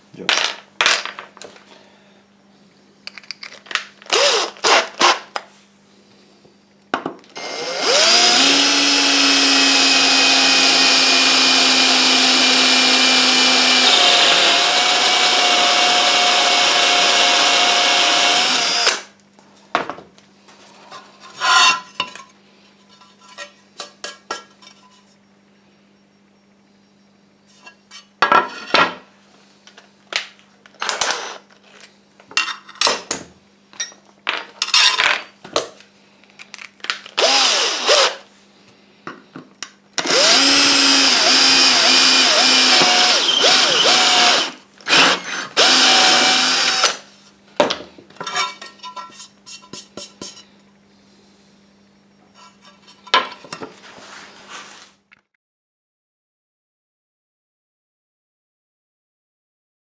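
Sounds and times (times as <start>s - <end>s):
power drill boring through tile: 4.1s - 5.2s, 7.4s - 19.1s, 30.8s - 31.4s, 37.2s - 38.2s, 40.0s - 47.0s
short knocks and scrapes: 20.5s - 25.2s.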